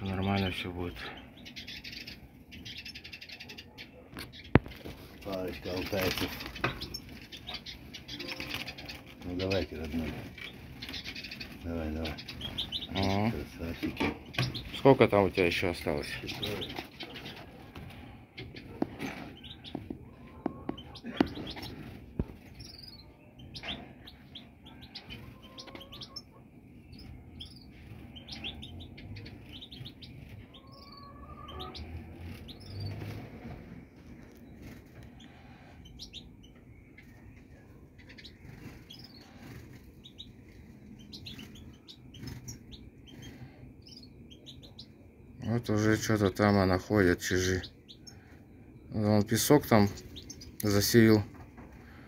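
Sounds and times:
finches chirping and twittering: 0.0s - 52.0s.

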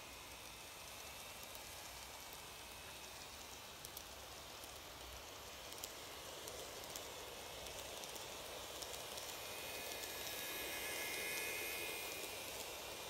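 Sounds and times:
model train running on track: 0.0s - 13.0s
small clicks: 1.0s - 13.0s.

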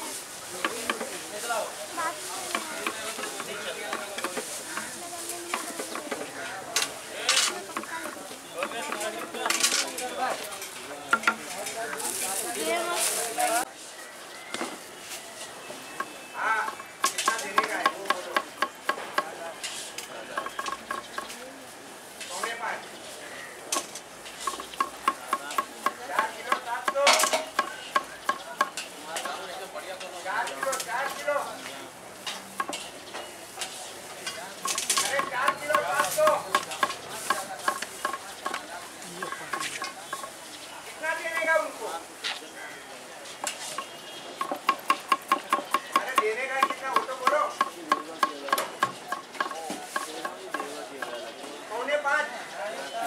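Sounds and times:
faint voices: 0.0s - 53.0s
knife chopping on wooden board: 44.4s - 50.7s.

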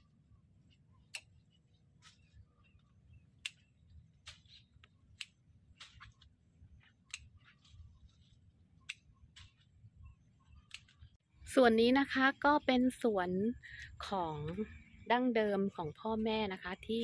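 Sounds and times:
hand cutters snipping stems: 1.0s - 2.3s, 3.4s - 9.8s, 10.5s - 11.2s.

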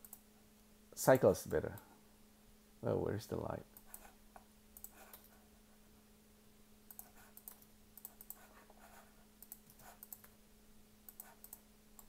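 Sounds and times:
faint steady hum: 0.0s - 12.0s
mouse and keyboard clicks: 9.4s - 10.4s.

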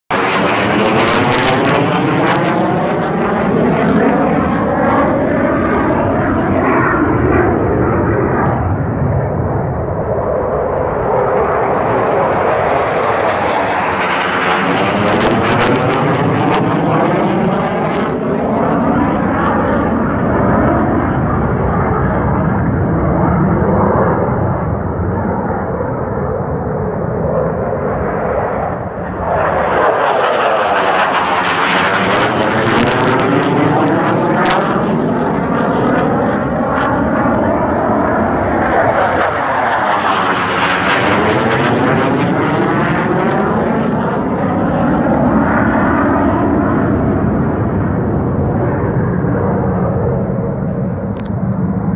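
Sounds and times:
jet flying low overhead: 0.1s - 51.9s.

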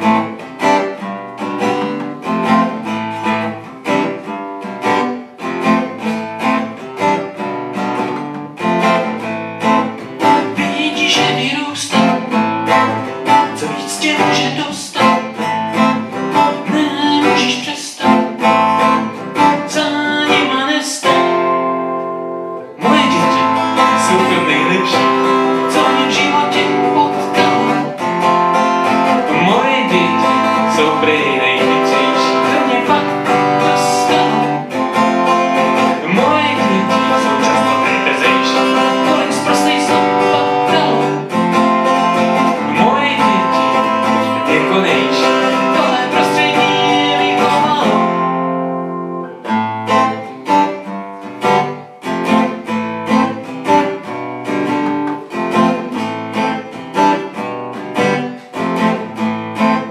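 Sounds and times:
acoustic guitar strumming: 0.0s - 59.9s
man singing: 10.2s - 21.6s, 22.6s - 48.5s.

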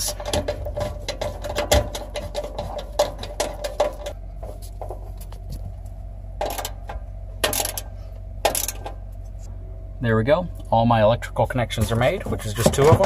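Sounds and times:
screwdriver clicking and scraping: 0.0s - 4.2s
hands rustling among wires: 0.0s - 6.1s.

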